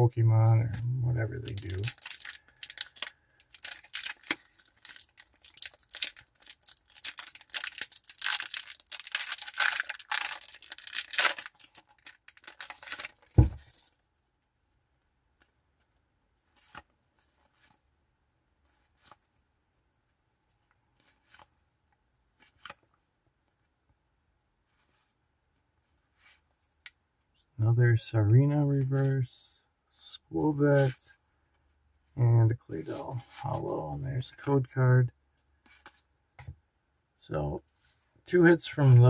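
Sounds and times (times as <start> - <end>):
foil wrapper tearing and crinkling: 1.4 - 13.7
loud thump: 13.4 - 13.6.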